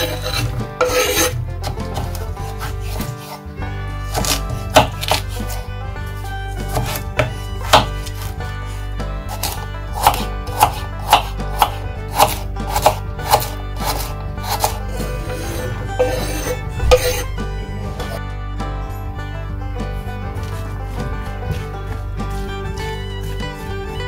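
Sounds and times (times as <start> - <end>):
knife chopping on wooden board: 0.0 - 3.4, 4.1 - 5.6, 6.6 - 8.3, 9.3 - 17.3.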